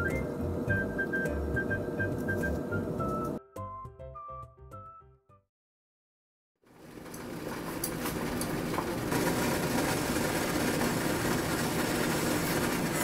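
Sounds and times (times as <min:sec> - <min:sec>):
water boiling in a saucepan: 0:06.7 - 0:13.0.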